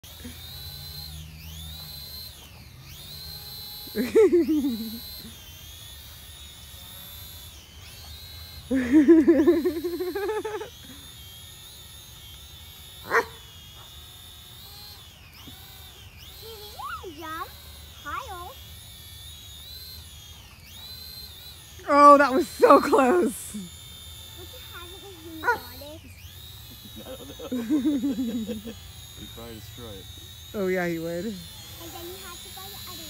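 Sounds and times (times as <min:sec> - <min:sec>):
drone propellers whining: 0:00.0 - 0:33.0
dog barking: 0:13.1 - 0:13.4, 0:25.4 - 0:25.7.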